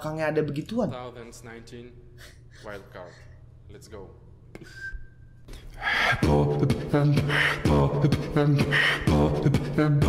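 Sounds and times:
beatboxing: 0:05.6 - 0:10.0.

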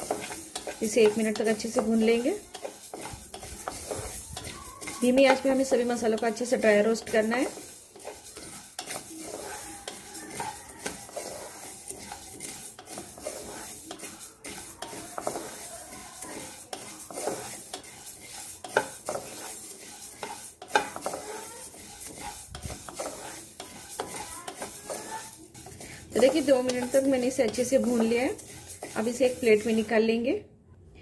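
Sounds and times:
seeds rattling in metal pan: 0:00.0 - 0:30.0
wooden spatula tapping and scraping: 0:00.0 - 0:30.2.

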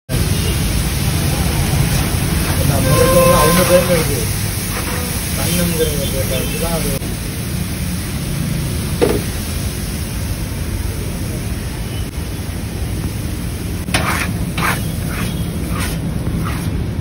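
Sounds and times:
food sizzling on a griddle: 0:00.2 - 0:17.0.

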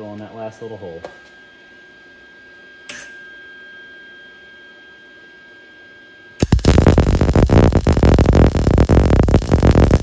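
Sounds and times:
low hum: 0:06.4 - 0:10.0.

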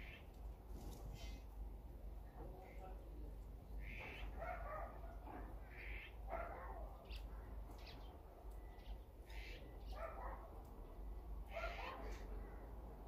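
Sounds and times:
magpies giving harsh calls: 0:03.8 - 0:05.0, 0:05.6 - 0:07.2, 0:08.8 - 0:10.2, 0:11.5 - 0:12.3.

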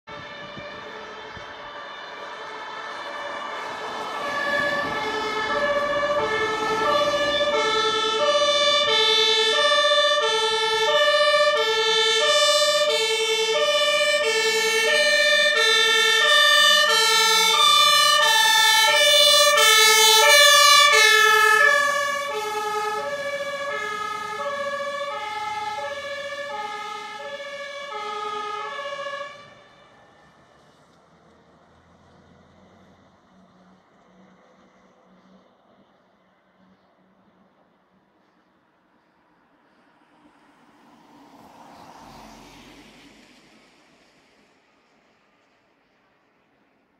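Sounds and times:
fire engine two-tone siren: 0:00.1 - 0:35.6.

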